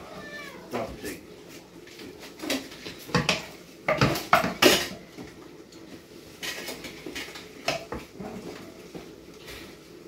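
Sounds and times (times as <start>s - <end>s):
dishes and utensils clattering: 2.2s - 5.4s, 6.3s - 8.9s.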